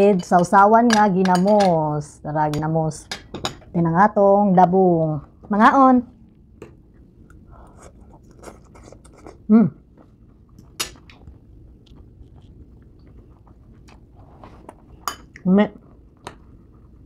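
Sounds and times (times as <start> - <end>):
crunchy chewing: 6.3 - 15.0.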